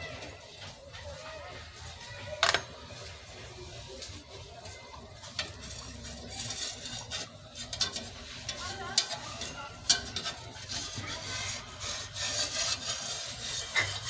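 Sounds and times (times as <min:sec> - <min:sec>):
utensils clicking on frying pan: 0:05.2 - 0:14.0.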